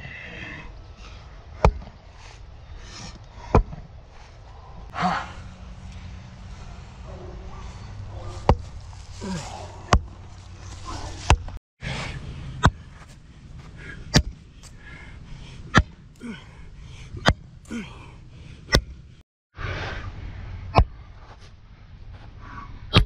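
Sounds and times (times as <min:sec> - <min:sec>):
sledgehammer striking wooden stake: 0:01.6 - 0:01.9, 0:08.3 - 0:09.0, 0:09.8 - 0:10.2, 0:12.6 - 0:12.8, 0:14.1 - 0:14.4, 0:15.7 - 0:16.0.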